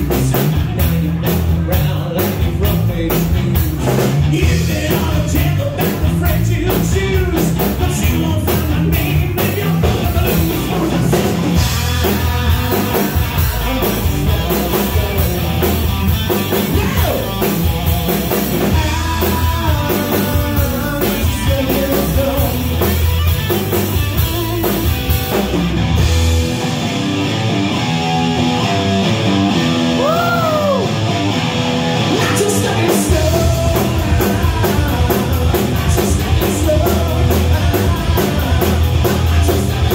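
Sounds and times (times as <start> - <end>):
rock band playing: 0.0 - 39.9.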